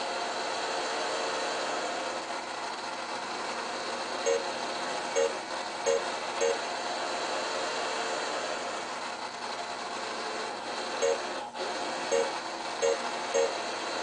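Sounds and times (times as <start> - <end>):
short high electronic beeps: 4.3 - 4.5, 5.2 - 6.6, 11.0 - 11.2, 12.1 - 13.6.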